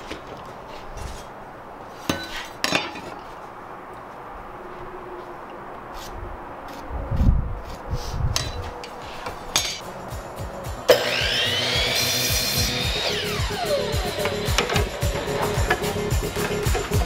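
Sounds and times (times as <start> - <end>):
miter saw motor whine: 10.9 - 16.0.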